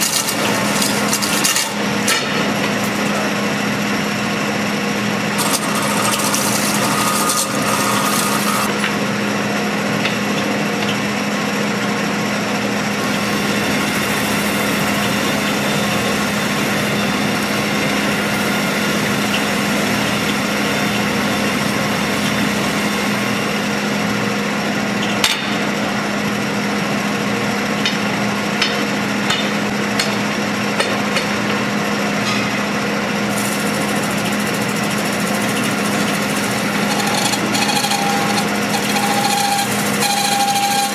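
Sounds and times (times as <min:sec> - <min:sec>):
spinning bar scraping sheet metal: 0:00.0 - 0:03.4, 0:05.4 - 0:08.8, 0:33.3 - 0:40.9
metal spinning lathe humming: 0:00.0 - 0:25.1, 0:33.1 - 0:40.9.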